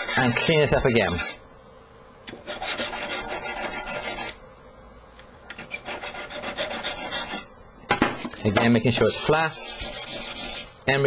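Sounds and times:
emery paper rubbing metal: 0.0s - 1.4s, 2.4s - 4.4s, 5.6s - 7.5s, 8.8s - 11.0s.

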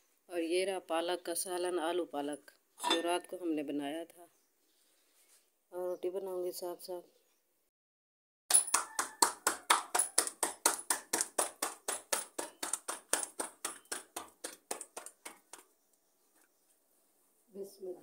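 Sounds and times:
dough slapped between palms: 8.5s - 15.7s.

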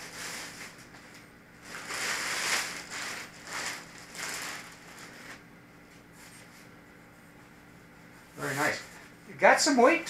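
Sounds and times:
plastic bag crinkling: 0.0s - 5.4s.

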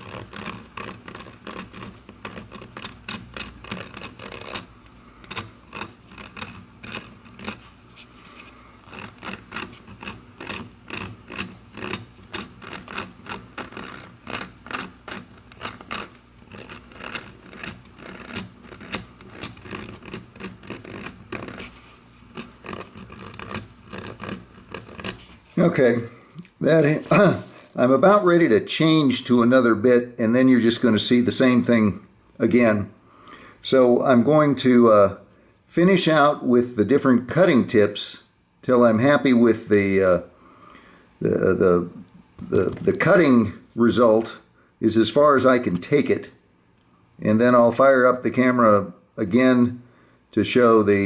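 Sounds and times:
rotary tool rasping wood: 0.0s - 25.6s.

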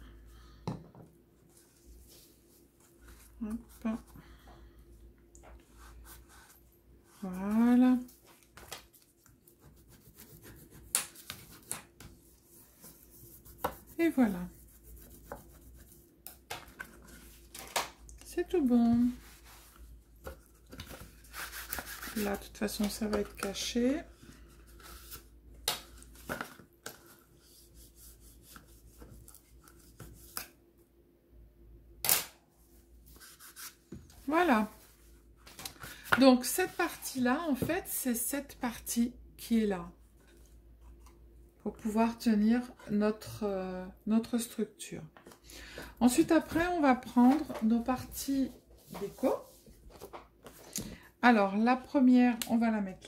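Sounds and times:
paper brushing: 21.1s - 22.5s.

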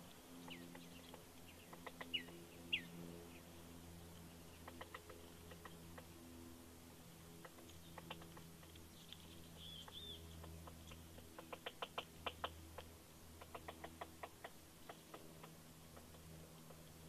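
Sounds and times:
woodpecker tapping: 0.4s - 2.8s, 4.6s - 6.1s, 7.4s - 17.0s.

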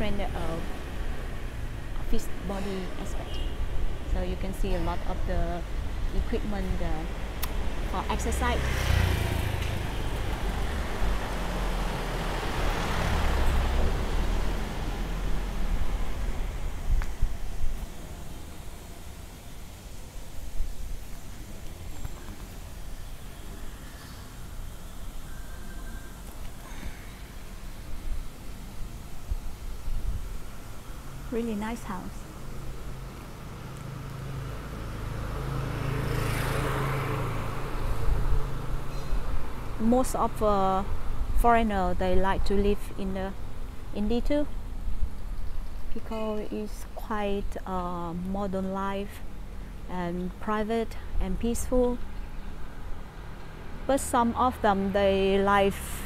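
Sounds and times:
motor scooter traffic: 0.0s - 56.0s.

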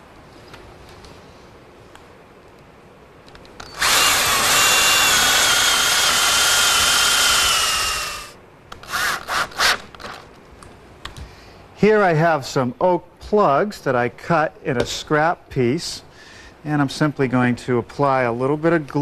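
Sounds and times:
cordless drill driving screw: 3.6s - 10.2s.

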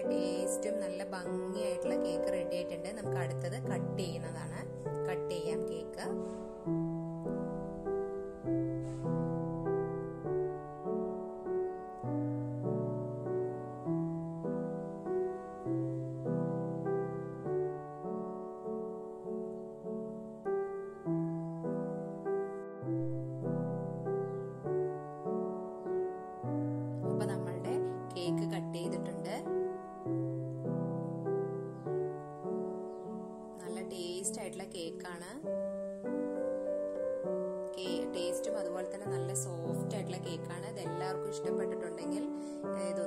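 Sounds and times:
slow gentle piano music: 0.0s - 43.0s.

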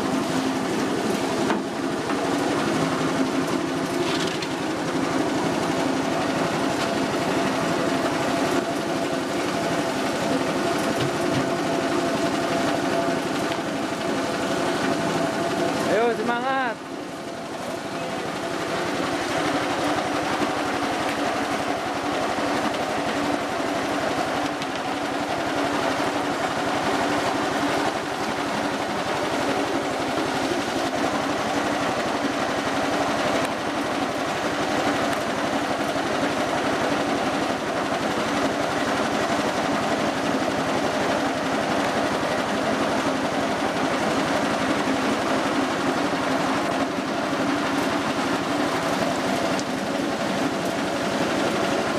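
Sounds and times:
small petrol engine running: 0.0s - 16.8s.

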